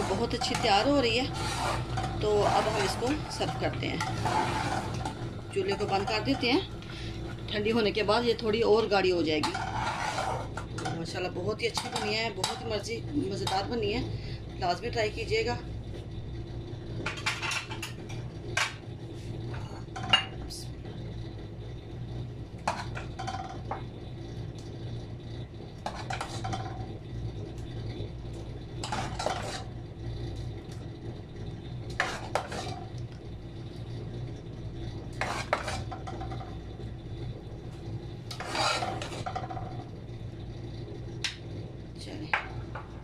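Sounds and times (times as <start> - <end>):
ladle scraping a metal pot: 0.0 - 7.2, 9.2 - 12.6, 25.8 - 26.7, 28.8 - 29.7, 31.9 - 32.9, 35.1 - 36.4, 38.3 - 39.7
steady low hum: 0.0 - 43.0.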